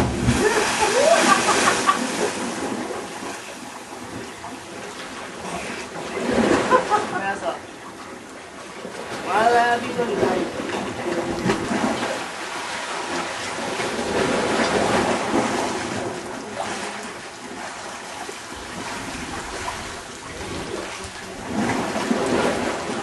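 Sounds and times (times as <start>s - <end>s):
sea waves washing against rocks: 0.0s - 23.0s.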